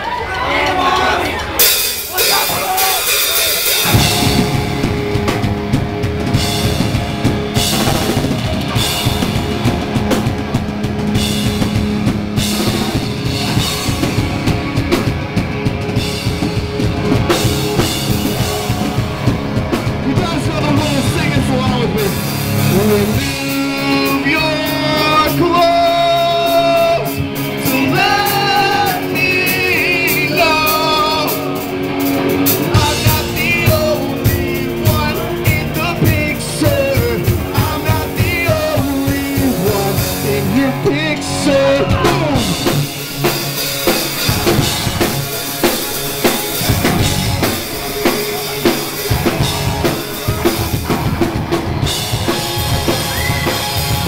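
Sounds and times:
electric guitars: 0.0 - 54.0
bass guitar: 1.3 - 54.0
drum kit hits: 1.6 - 23.6, 41.7 - 54.0
person singing: 17.8 - 43.1.

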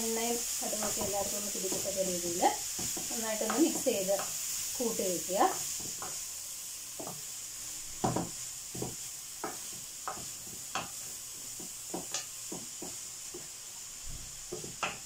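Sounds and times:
oil sizzling: 0.0 - 15.0
wooden spatula scraping pan: 0.7 - 6.2, 7.9 - 13.0.

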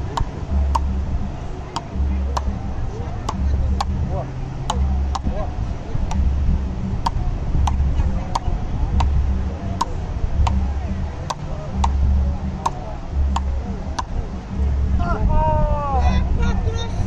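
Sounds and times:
paddles striking a ball: 0.0 - 1.1, 1.7 - 14.3.

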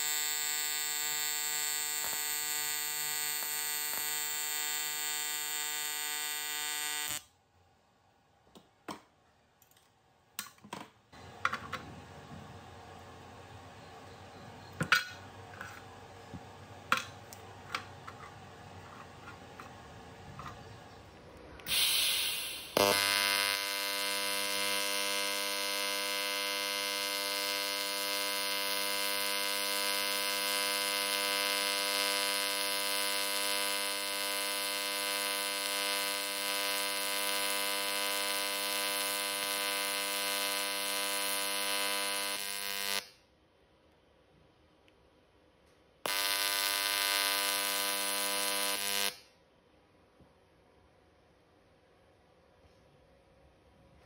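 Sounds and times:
welding arc hiss: 0.0 - 7.2, 21.6 - 43.1, 46.1 - 49.3
welding arc buzzing: 0.0 - 7.3, 21.7 - 43.2, 46.0 - 49.3.

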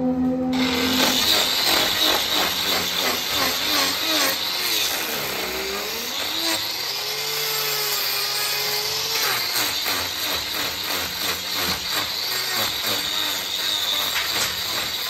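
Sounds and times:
angle grinder grinding hoof: 0.5 - 15.0.

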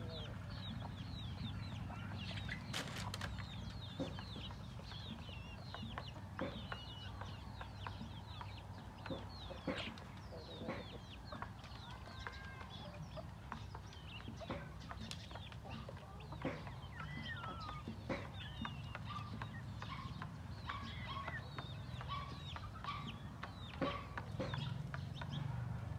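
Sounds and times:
chickens clucking: 0.0 - 25.9
high chirps and calls: 0.1 - 25.5.

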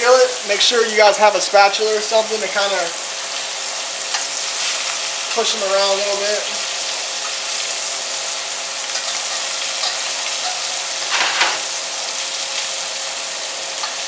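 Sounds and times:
fish sizzling in butter: 0.1 - 14.0
spatula scraping pan: 10.4 - 11.8.

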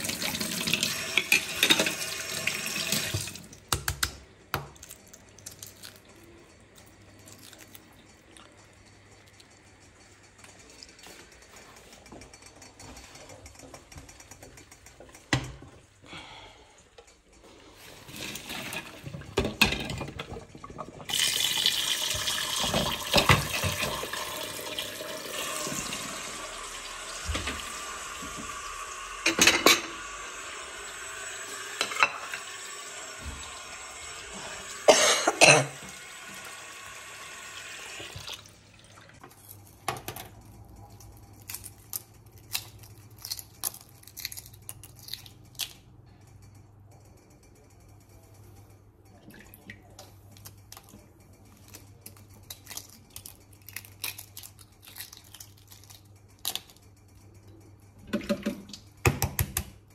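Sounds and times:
egg shell cracking while peeled: 3.7 - 7.9, 41.0 - 46.0, 51.6 - 57.2
dishes clattering: 29.2 - 30.0.

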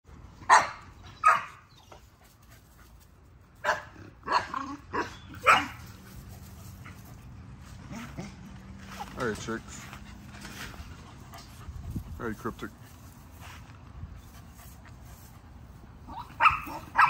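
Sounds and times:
dog barking: 0.5 - 1.6, 3.6 - 5.8, 16.1 - 17.0.

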